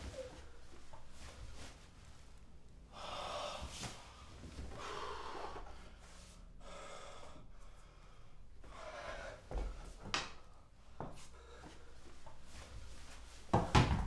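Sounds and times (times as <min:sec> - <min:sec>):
person breathing hard: 0:02.8 - 0:12.2.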